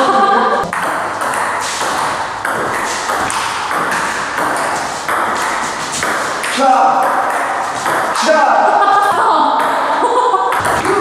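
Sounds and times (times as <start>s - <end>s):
ball bouncing on table: 0.6s - 8.4s, 10.5s - 11.0s
ping pong ball clicking on paddles: 0.6s - 9.9s.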